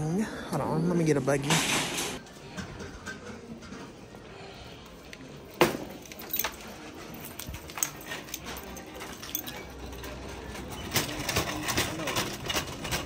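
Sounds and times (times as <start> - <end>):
shopping cart clank: 1.4 - 2.2, 5.6 - 13.0
shopping cart rattling: 5.6 - 13.0.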